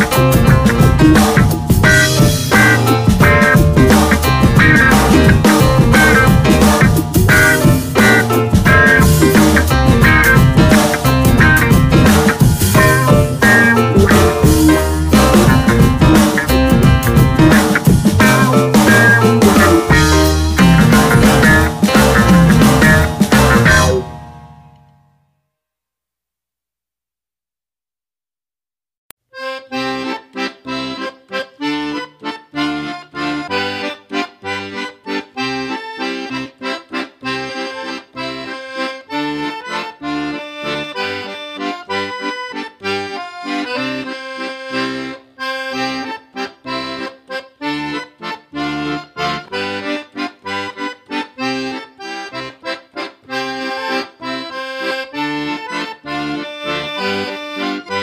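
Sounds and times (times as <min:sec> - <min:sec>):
background music with steady beat: 0:00.0 - 0:24.6.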